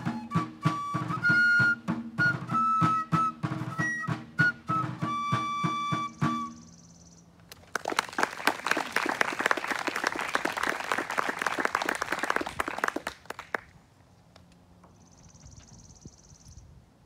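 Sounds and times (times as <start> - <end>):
audience applauding: 7.5 - 13.7.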